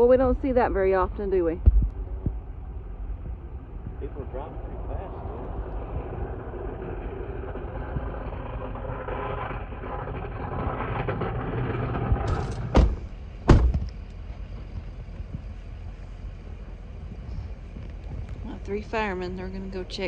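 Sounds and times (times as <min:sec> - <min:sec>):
road noise: 0:00.0 - 0:20.0
truck engine rumble: 0:00.0 - 0:20.0
heavy thumps: 0:01.3 - 0:04.1, 0:07.9 - 0:15.5.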